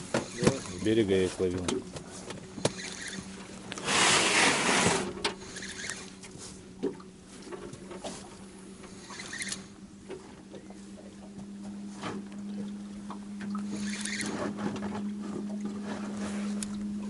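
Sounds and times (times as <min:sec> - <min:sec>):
waves slapping against boat: 0:00.0 - 0:09.4
low hum: 0:00.0 - 0:17.0.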